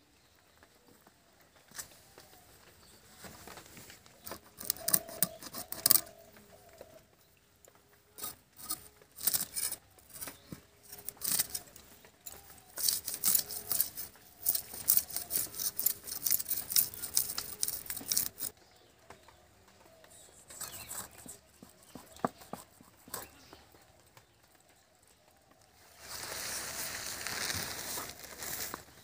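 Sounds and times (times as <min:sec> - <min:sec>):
blade scraping fish: 0:04.4 - 0:06.2, 0:08.2 - 0:18.5.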